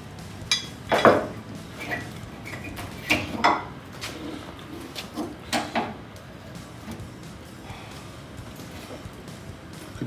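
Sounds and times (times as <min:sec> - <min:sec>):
pry bar clinking on steel: 0:00.5 - 0:01.2.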